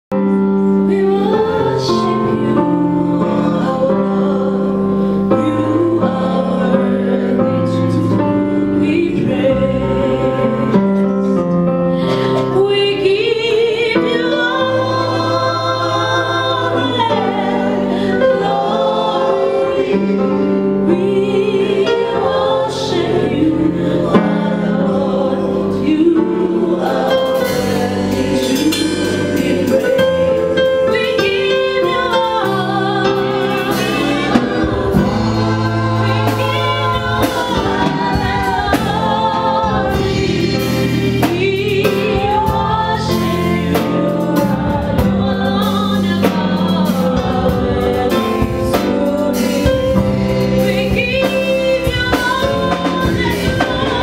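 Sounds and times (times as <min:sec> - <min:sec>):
sustained keyboard chords: 0:00.2 - 0:54.0
backing singers: 0:12.0 - 0:54.0
woman singing into microphone: 0:12.1 - 0:19.7, 0:20.9 - 0:54.0.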